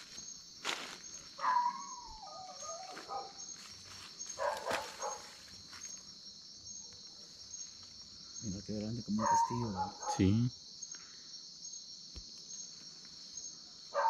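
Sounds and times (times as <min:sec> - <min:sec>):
crickets chirping: 0:00.0 - 0:14.0
dog barking: 0:01.4 - 0:03.4, 0:04.4 - 0:05.4, 0:09.1 - 0:10.3.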